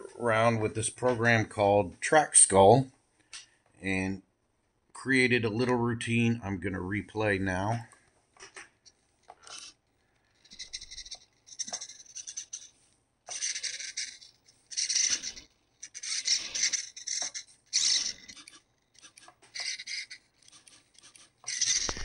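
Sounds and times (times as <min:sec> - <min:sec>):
small servos whirring: 0:08.8 - 0:22.0.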